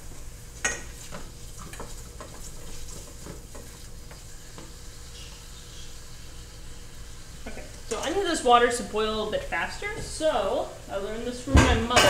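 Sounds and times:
food sizzling: 0.0 - 12.0
utensil scraping a skillet: 0.6 - 6.9.

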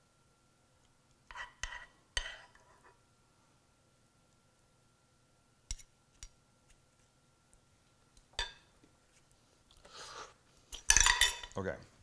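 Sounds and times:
metal spoons clinking: 10.9 - 11.6.

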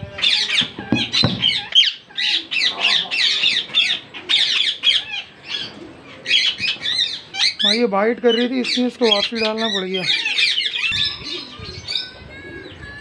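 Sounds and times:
parakeets squawking: 0.0 - 12.8
knocks: 0.6 - 1.6.

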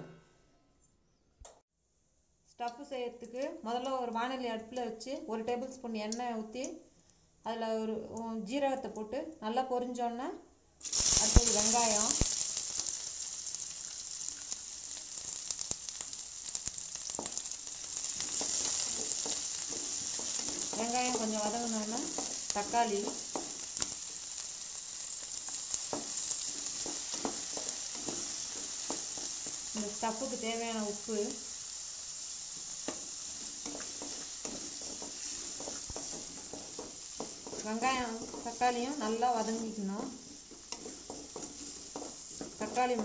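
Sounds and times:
onions sizzling in hot oil: 10.8 - 43.0
spatula scraping and tapping pan: 15.2 - 30.4, 32.6 - 43.0.

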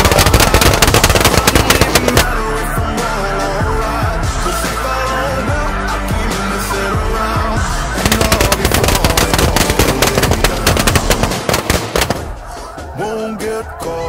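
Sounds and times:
rapid shotgun shots: 0.0 - 2.4, 8.0 - 12.8.

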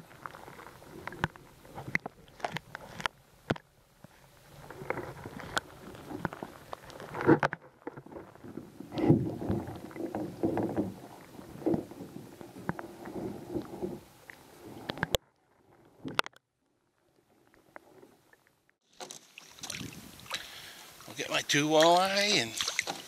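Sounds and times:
muffled underwater sloshing: 0.0 - 16.2.

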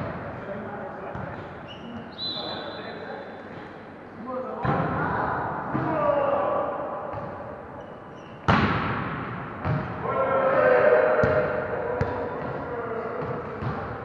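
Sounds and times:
voices calling out in a hall: 0.0 - 8.5, 9.6 - 14.0
volleyball being hit: 8.5 - 10.0.

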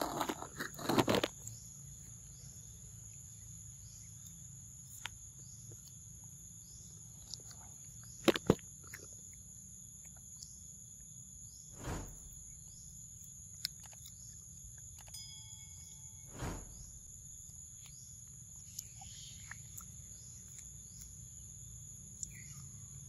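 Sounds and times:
insect chirp: 0.0 - 23.0
insect chorus buzzing: 0.0 - 23.0
monkey crunching fruit: 7.2 - 10.4.

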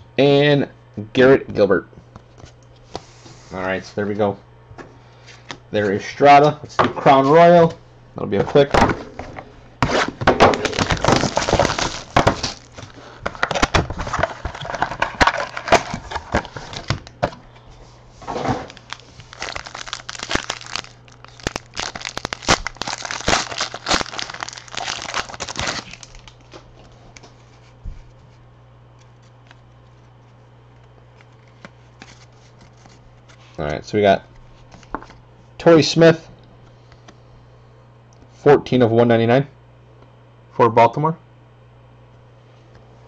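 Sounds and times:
faint steady hum: 0.0 - 43.0
plastic wrapping crinkling and tearing: 9.8 - 17.4, 18.2 - 27.2.

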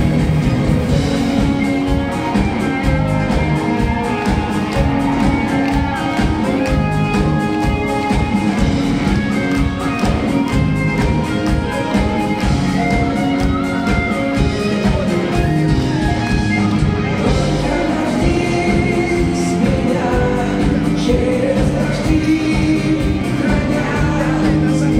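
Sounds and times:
electric guitar: 0.0 - 24.9
steady drum beat: 0.0 - 24.9.

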